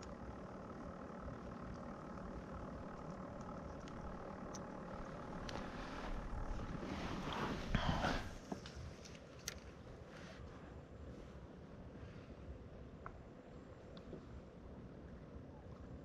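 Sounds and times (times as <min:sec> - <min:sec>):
distant motor droning: 0:00.0 - 0:08.8
faint clicks: 0:01.4 - 0:05.8.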